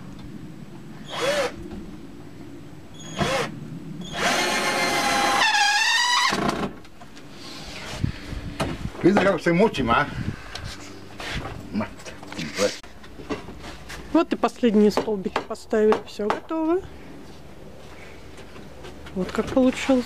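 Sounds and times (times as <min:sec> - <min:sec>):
cordless drill motor whine: 0:01.0 - 0:01.6, 0:03.0 - 0:06.5.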